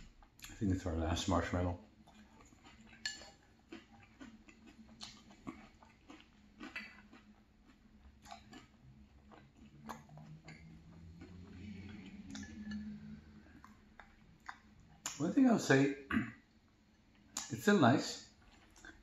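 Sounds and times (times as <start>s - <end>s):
low hum: 8.0s - 15.0s.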